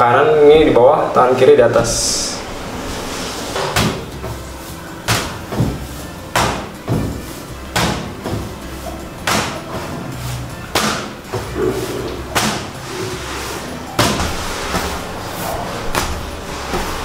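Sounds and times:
dough slapping on table: 5.0s - 15.2s, 15.9s - 17.0s.

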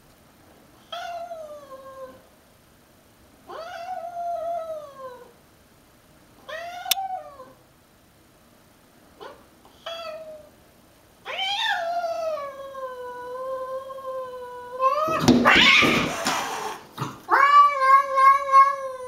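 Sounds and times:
cat yowling: 3.5s - 5.3s, 11.3s - 16.2s, 17.3s - 19.0s.

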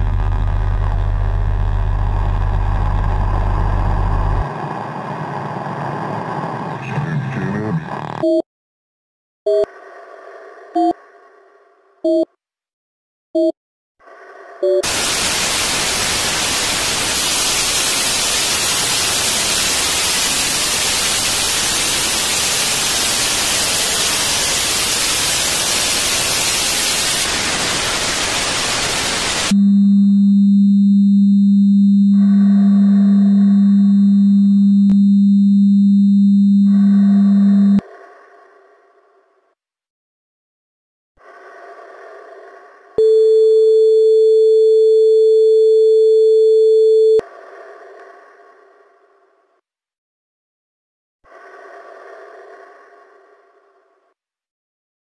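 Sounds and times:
low steady electronic hum: 0.0s - 4.4s, 29.5s - 37.8s
short electronic beeps: 12.1s - 12.3s, 13.4s - 13.6s
faint electronic tones: 29.5s - 37.8s.

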